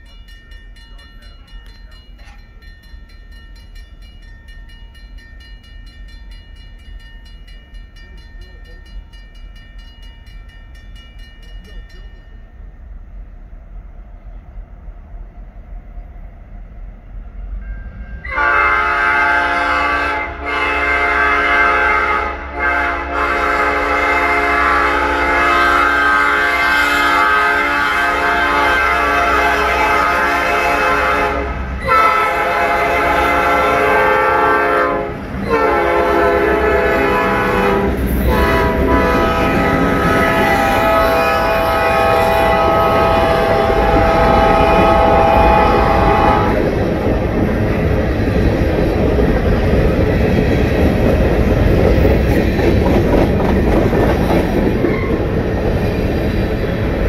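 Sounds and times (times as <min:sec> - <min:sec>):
grade-crossing bell ringing: 0:00.0 - 0:13.1, 0:17.6 - 0:18.6
diesel locomotive rumble: 0:11.0 - 0:57.0
locomotive air horn blasts: 0:18.3 - 0:46.6.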